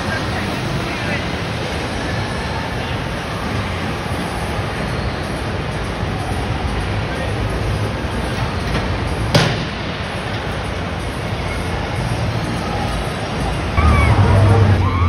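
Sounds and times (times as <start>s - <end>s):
indoor hall din: 11.5s - 15.0s.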